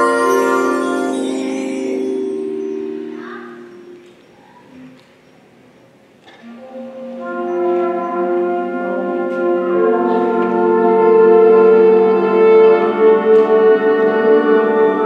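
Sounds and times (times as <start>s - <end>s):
concert band playing held chords: 0.0s - 4.4s.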